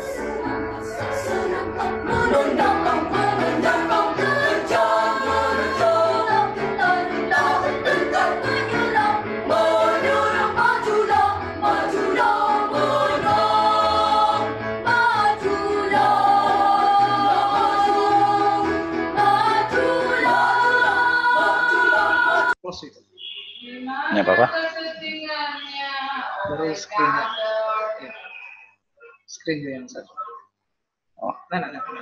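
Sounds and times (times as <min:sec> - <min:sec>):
children's choir singing: 0:00.0 - 0:22.6.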